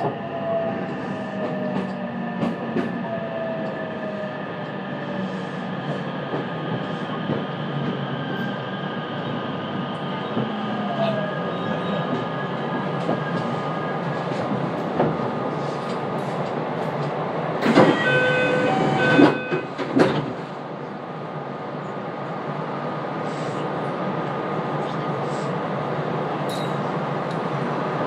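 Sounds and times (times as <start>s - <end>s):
train running rumble: 0.0s - 21.0s.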